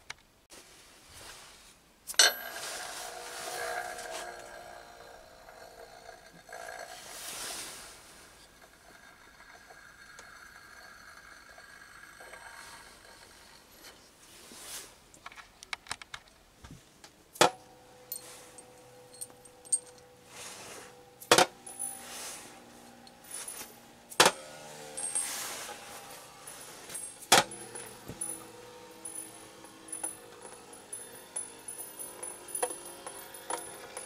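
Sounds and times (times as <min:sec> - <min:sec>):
spinning top humming: 0:02.2 - 0:14.2, 0:17.6 - 0:34.0
spinning tops clacking on plastic: 0:22.6 - 0:34.0.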